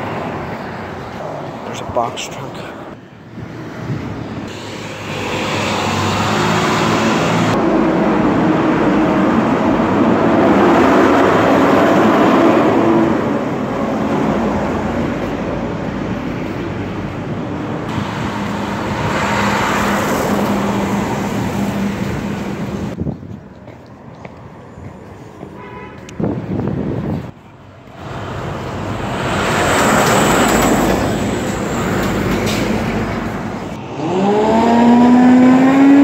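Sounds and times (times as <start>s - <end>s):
garbage truck diesel engine: 27.7s - 34.0s.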